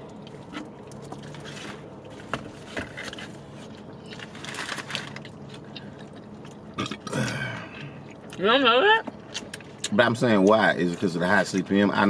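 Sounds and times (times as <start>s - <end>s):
chewing and crunching food: 0.0s - 11.8s
steady low hum: 0.0s - 12.0s.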